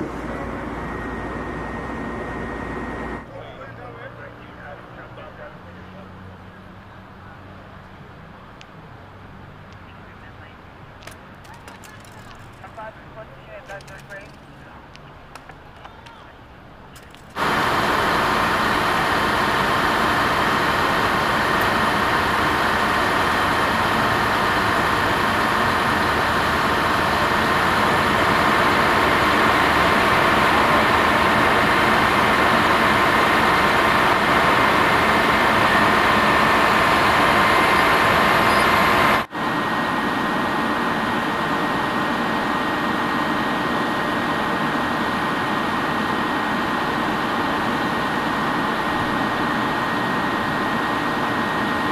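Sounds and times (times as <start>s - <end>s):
vehicle engine idling with whine: 0.0s - 51.9s.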